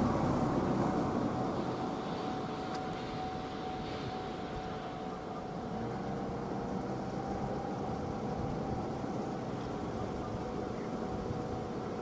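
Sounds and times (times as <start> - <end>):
distant road traffic hum: 0.0 - 12.0
faint steady whine: 0.0 - 12.0.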